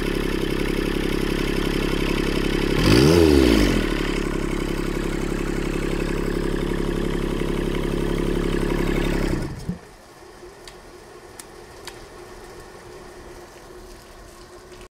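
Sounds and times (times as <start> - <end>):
engine thump: 0.0 - 9.9
diesel engine running: 0.0 - 14.9.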